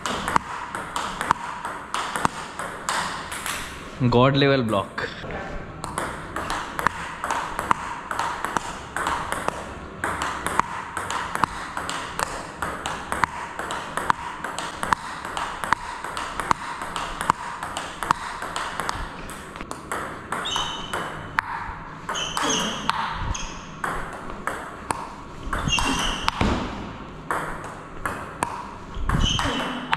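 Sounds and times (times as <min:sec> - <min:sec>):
table tennis ball clicks: 0:05.8 - 0:26.5
brief high squeaks: 0:22.1 - 0:23.6, 0:25.6 - 0:26.4, 0:29.1 - 0:29.8.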